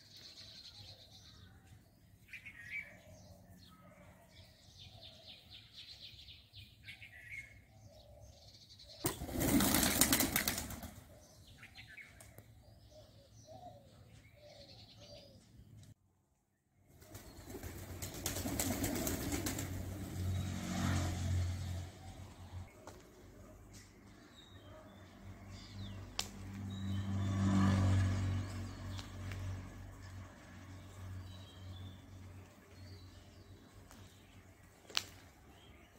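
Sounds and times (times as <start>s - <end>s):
pigeon wings flapping: 9.0s - 11.0s, 17.0s - 20.0s.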